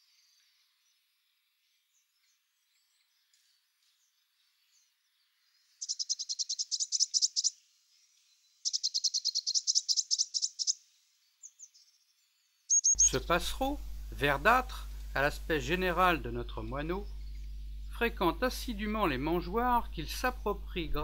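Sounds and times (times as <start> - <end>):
nestlings chirping rapidly: 5.8 - 7.6, 8.6 - 10.8, 12.7 - 20.7.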